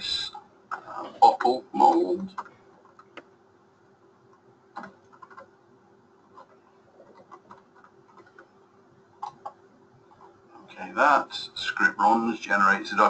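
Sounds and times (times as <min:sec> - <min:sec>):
steady hum: 0:00.0 - 0:13.0
keystrokes on computer keyboard: 0:02.3 - 0:03.3, 0:04.8 - 0:05.5, 0:06.3 - 0:08.5.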